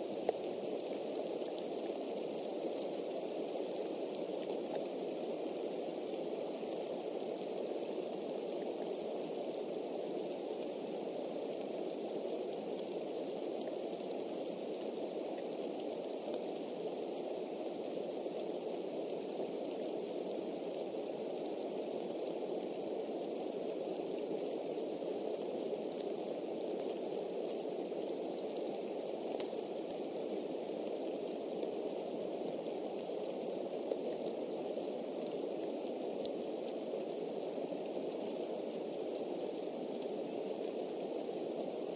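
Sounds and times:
steady rain hiss: 0.0 - 41.9
raindrop ticks: 0.2 - 0.5.

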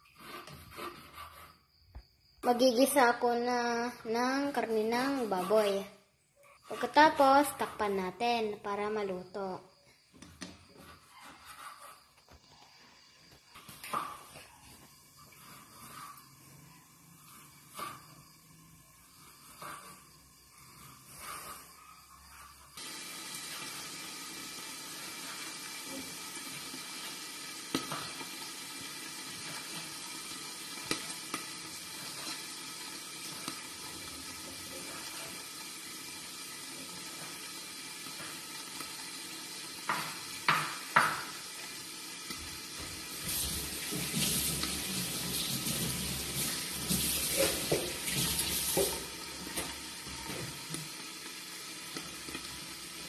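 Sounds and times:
pork sizzling in a frying pan: 13.0 - 53.0.

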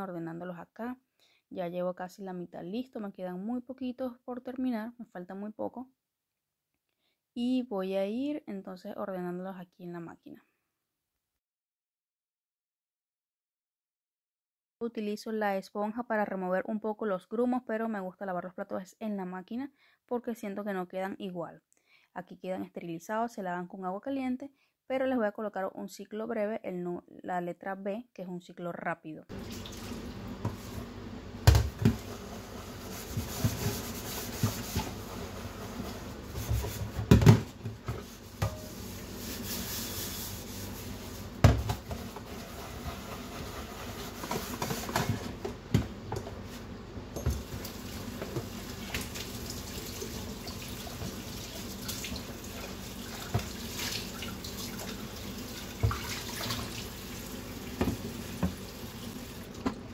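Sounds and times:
water running and splashing: 29.3 - 30.7, 47.3 - 59.6
pot knocking on metal sink: 38.4 - 38.7.

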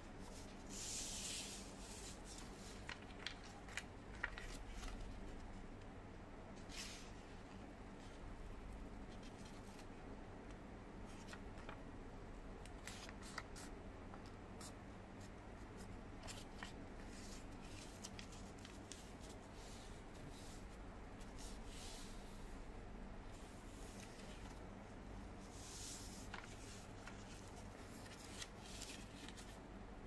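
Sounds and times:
steady low hum: 0.0 - 30.0
paper being folded and creased: 0.2 - 5.5, 16.2 - 20.6, 25.4 - 29.6.

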